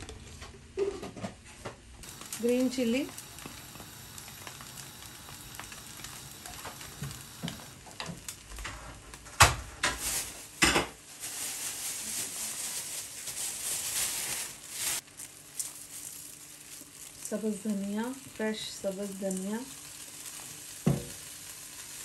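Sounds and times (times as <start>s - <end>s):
food sizzling: 2.0s - 9.2s, 9.8s - 22.0s.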